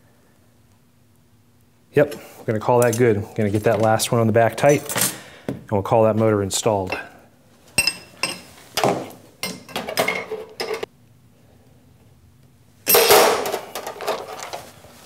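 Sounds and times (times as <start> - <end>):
wrench clinking on metal nut: 7.8 - 8.5.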